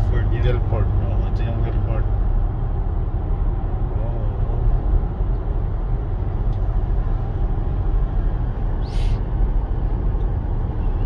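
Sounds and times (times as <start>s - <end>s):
car road and engine rumble: 0.0s - 11.0s
brief hiss: 8.8s - 9.3s.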